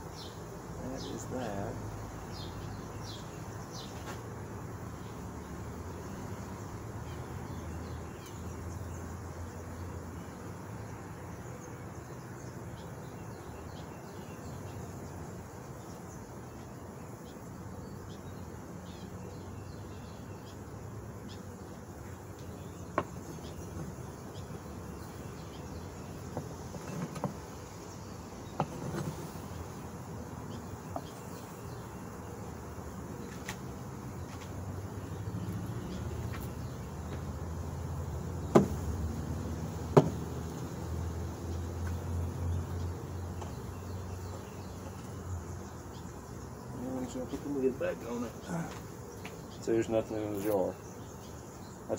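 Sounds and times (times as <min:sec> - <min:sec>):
bees buzzing: 0:00.0 - 0:51.9
sharp knocks: 0:38.5 - 0:38.8, 0:39.9 - 0:40.2.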